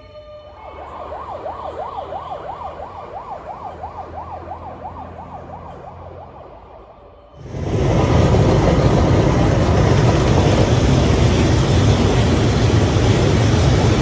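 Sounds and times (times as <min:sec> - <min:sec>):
emergency vehicle siren yelping: 0:00.0 - 0:08.2
low rumble of road traffic: 0:00.0 - 0:14.0.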